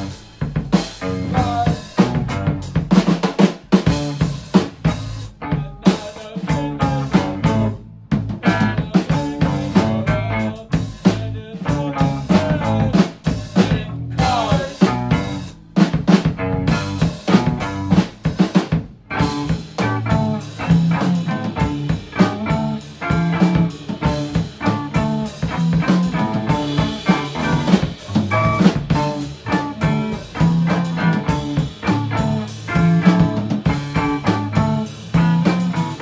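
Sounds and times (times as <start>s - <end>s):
rock band music: 0.0s - 36.0s.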